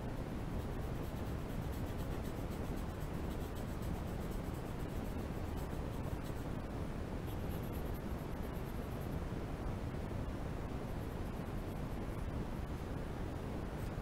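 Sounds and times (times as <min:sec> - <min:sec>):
low background rumble: 0:00.0 - 0:14.0
pencil scratching on paper: 0:07.3 - 0:08.7.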